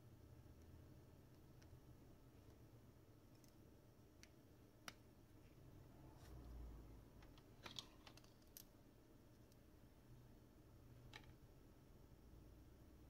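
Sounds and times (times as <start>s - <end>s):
faint phone parts clicking: 3.2s - 5.0s, 7.2s - 8.7s.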